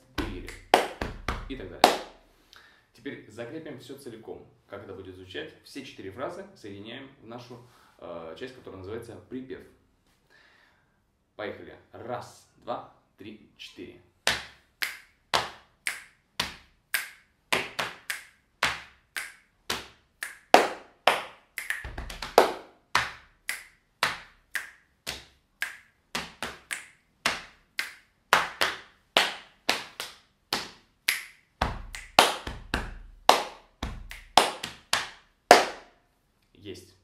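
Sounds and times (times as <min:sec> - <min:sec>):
deep thumps: 0:00.0 - 0:01.8
hand claps: 0:00.0 - 0:02.2, 0:14.3 - 0:35.9
hand slaps on thighs: 0:14.3 - 0:35.9
finger snaps: 0:21.6 - 0:21.9.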